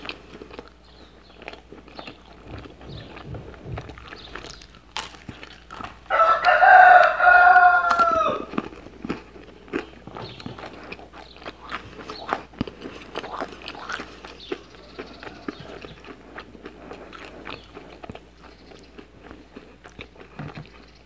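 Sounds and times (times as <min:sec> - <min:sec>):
person chewing: 0:00.0 - 0:21.0
rooster crowing: 0:06.1 - 0:08.6, 0:14.5 - 0:16.1.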